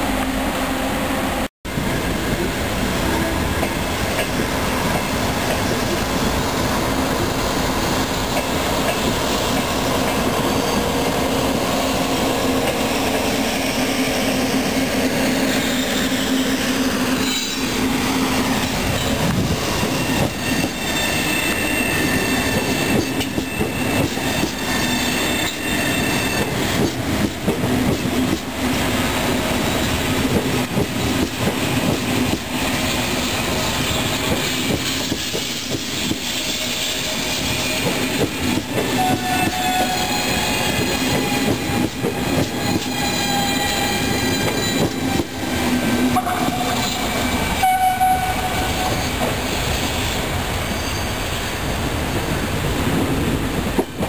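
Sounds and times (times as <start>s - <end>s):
train wheels squealing: 7.2s - 27.4s, 32.0s - 52.0s
train whine falling in pitch: 46.0s - 49.9s.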